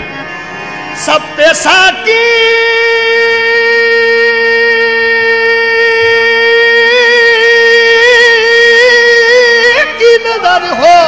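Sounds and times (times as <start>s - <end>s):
man singing long high note: 1.0s - 11.0s.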